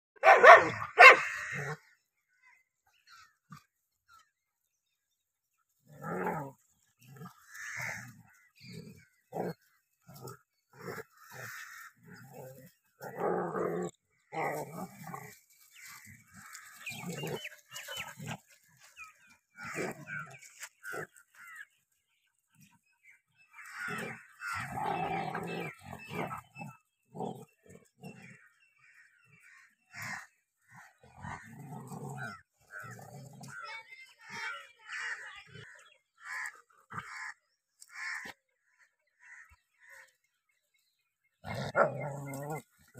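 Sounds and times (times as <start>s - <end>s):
dogs growling: 5.8s - 21.6s, 23.5s - 33.6s, 41.3s - 42.9s.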